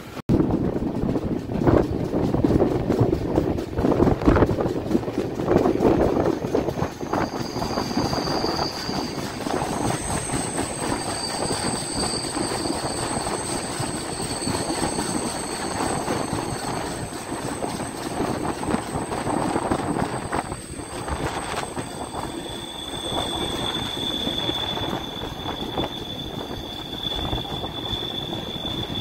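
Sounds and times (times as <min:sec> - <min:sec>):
train wheels rumbling on rails: 0:00.0 - 0:29.0
high-pitched squeal: 0:06.9 - 0:29.0.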